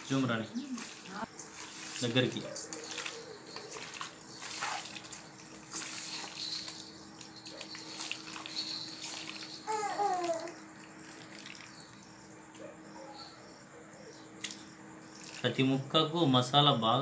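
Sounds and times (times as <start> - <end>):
hand squelching meat in marinade: 0.8 - 9.6.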